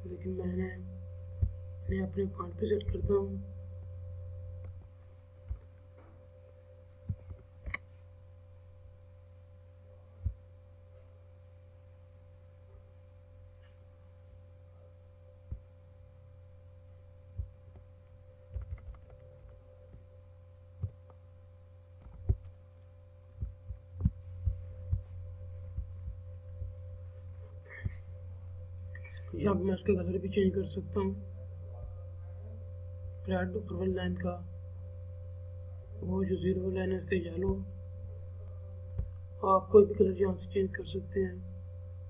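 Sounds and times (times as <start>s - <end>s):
low electrical hum: 0.0s - 42.0s
computer mouse clicks: 7.1s - 7.9s, 18.5s - 19.6s.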